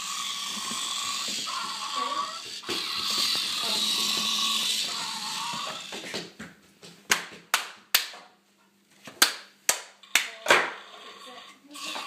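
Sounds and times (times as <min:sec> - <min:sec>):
small electric motor whirring: 0:00.0 - 0:06.0.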